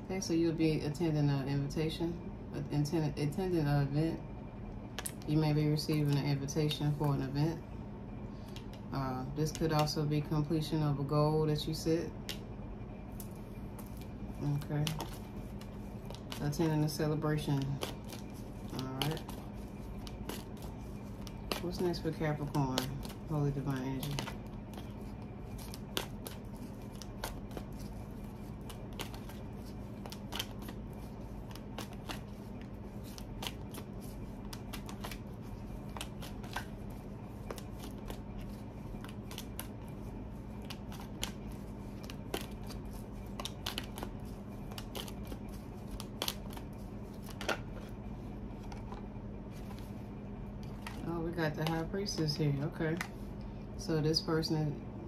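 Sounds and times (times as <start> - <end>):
cards being shuffled: 13.2 - 48.0, 48.6 - 53.2.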